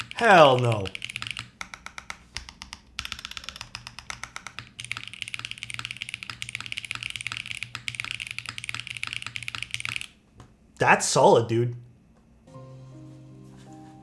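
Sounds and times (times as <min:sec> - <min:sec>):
mechanical keyboard typing: 0:00.0 - 0:10.2.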